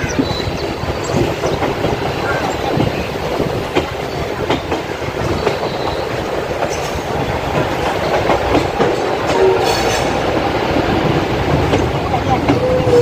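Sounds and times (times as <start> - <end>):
train wheels clattering over rail joints: 0.0 - 13.0.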